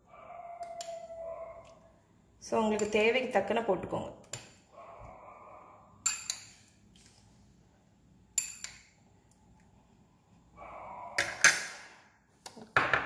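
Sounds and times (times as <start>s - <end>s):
spoon clinking on ceramic plate: 6.0s - 6.7s.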